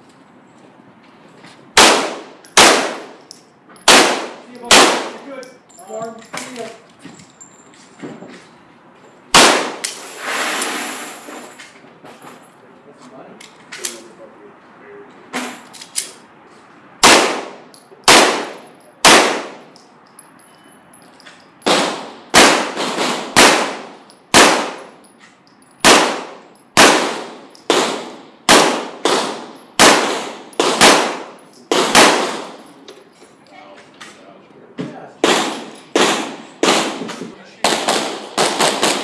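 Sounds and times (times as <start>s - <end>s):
pistol shots echoing in a hall: 35.2s - 37.0s.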